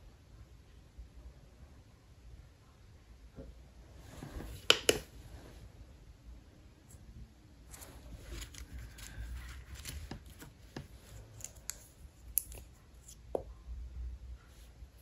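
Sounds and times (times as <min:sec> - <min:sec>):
nails clicking on plastic tips: 0:11.4 - 0:12.7.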